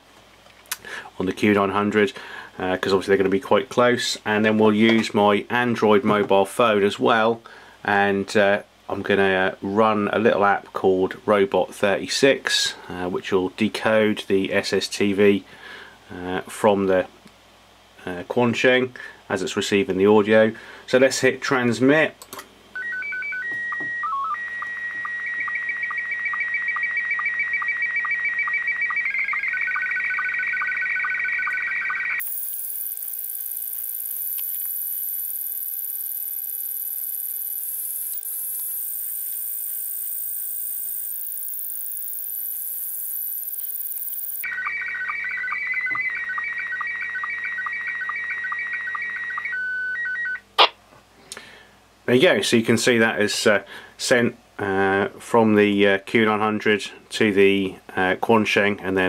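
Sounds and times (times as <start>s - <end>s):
warbling sstv signal beeps: 22.8s - 50.4s
hum with high whine: 31.4s - 44.5s
short steady beeps: 32.2s - 44.5s.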